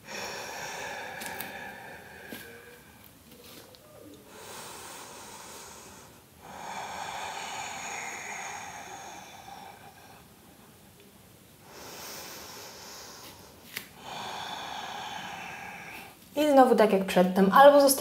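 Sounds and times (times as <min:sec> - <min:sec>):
woman breathing slowly: 0:00.0 - 0:16.4.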